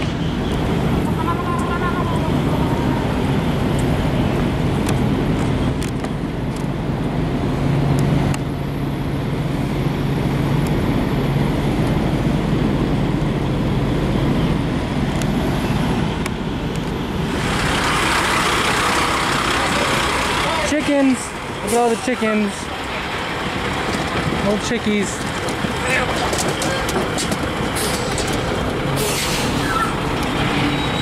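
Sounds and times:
truck engines humming: 0:00.0 - 0:31.0
truck rushing past: 0:07.2 - 0:24.4.

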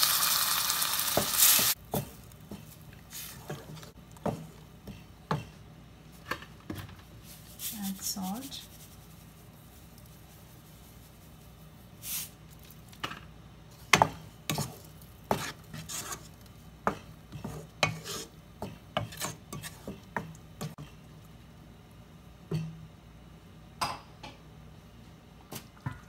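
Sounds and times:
wooden spatula scraping a pot: 0:01.6 - 0:05.6, 0:13.7 - 0:20.9.

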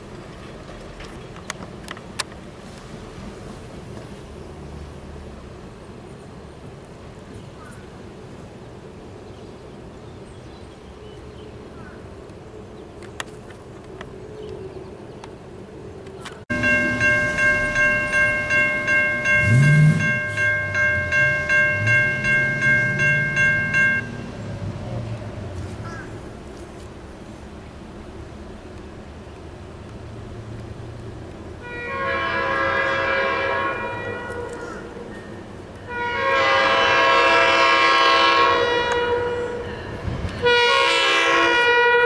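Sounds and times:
diesel locomotive engine drone: 0:00.0 - 0:42.0
crossing bell ringing: 0:16.5 - 0:24.6.

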